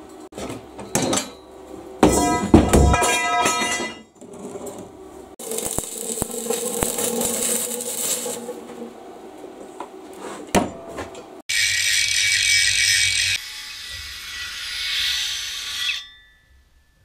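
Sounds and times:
arc welding hiss and buzz: 5.4 - 8.6
welding spatter crackles: 5.4 - 8.6.

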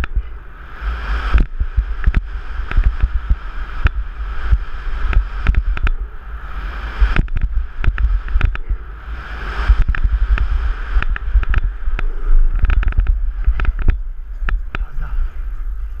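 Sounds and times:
wind rumble on microphone: 0.0 - 16.0
bike clattering over bumps: 9.7 - 14.9.

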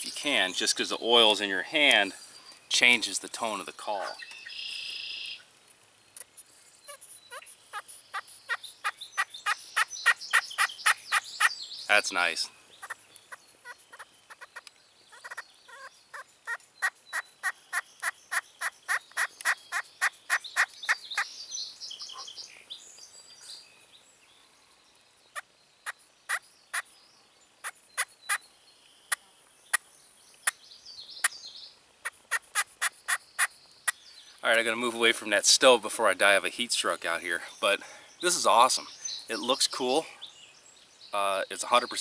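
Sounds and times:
slate turkey call clucks: 6.9 - 11.5, 12.8 - 21.3, 32.0 - 34.0.

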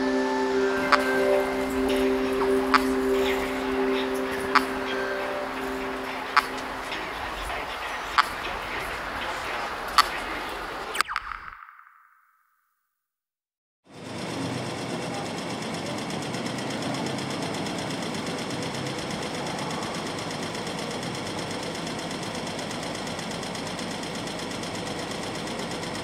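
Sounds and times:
electronic buzzing pulse texture: 0.0 - 8.2.

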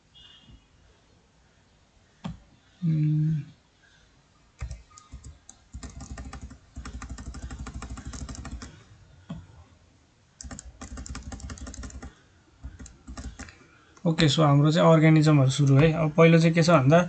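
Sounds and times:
computer keyboard typing: 4.6 - 8.8, 10.4 - 13.6.

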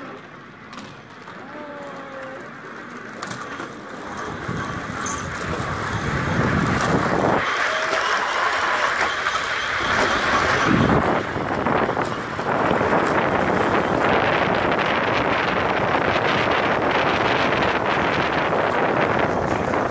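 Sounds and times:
zip-line trolley wheels rolling: 0.0 - 19.9
wind on microphone: 4.2 - 7.5, 9.8 - 19.9.

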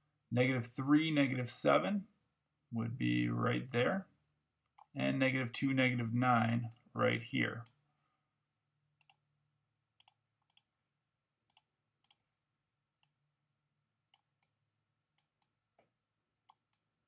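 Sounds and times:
faint computer mouse clicks: 10.0 - 10.7.

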